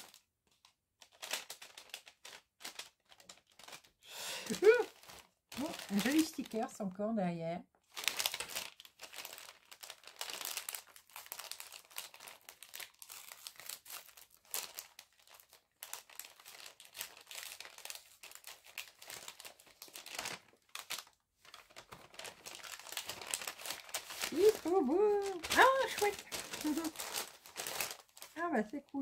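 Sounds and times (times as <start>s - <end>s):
packaging crinkling: 0.0s - 6.8s, 7.8s - 29.0s.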